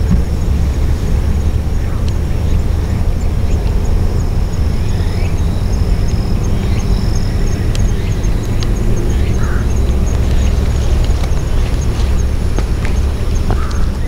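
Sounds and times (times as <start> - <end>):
faint high ticking: 0.0 - 14.0
low outdoor rumble: 0.0 - 14.0.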